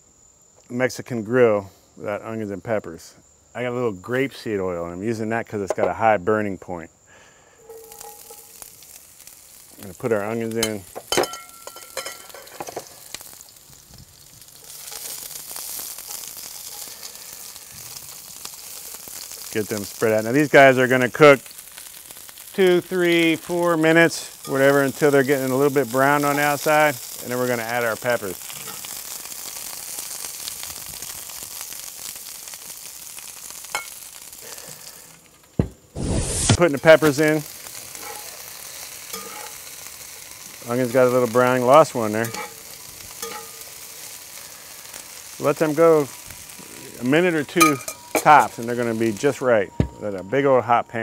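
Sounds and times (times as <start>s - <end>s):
onions sizzling in oil: 7.0s - 51.0s
clink: 10.6s - 12.6s, 43.2s - 43.6s, 47.6s - 48.2s.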